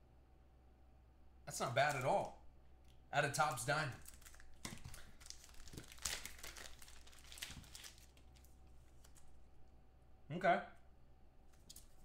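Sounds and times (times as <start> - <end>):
plastic packaging crinkling: 4.0 - 9.4.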